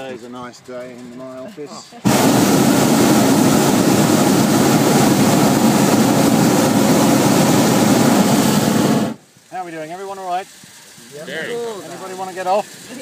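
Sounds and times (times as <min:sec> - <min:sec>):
propane burner firing: 0:02.0 - 0:10.3.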